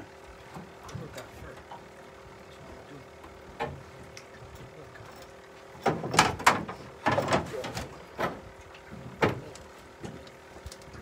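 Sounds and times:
clunks and scrapes in aluminum boat: 5.8s - 10.2s.

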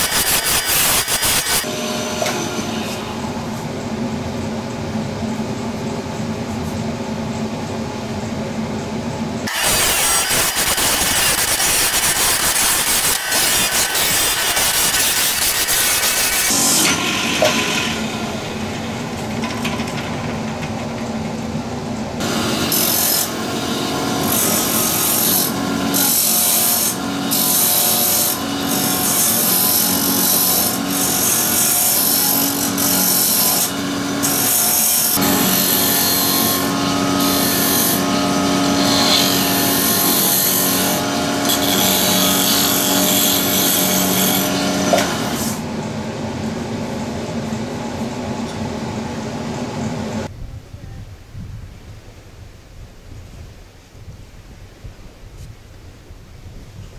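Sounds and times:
wood lathe humming: 22.2s - 45.3s.

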